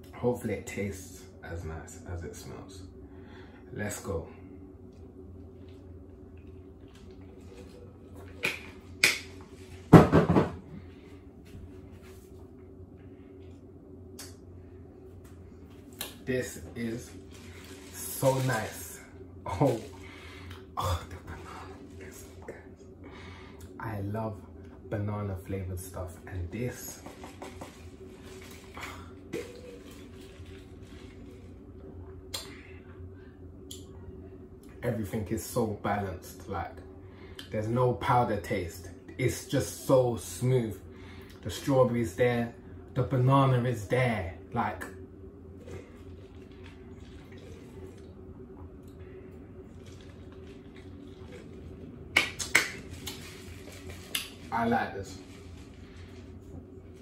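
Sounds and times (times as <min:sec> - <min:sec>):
low steady hum: 0:00.0 - 0:57.0
lip smacks: 0:32.3 - 0:32.6.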